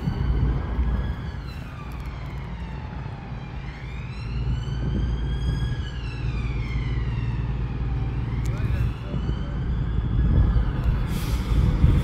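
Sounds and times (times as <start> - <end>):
emergency siren wailing: 0.0 - 12.0
steady low rumble: 7.8 - 12.0.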